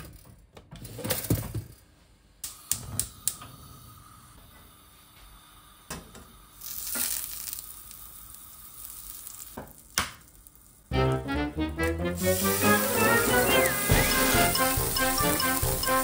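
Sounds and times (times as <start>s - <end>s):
dishes and utensils clinking: 12.6s - 16.0s.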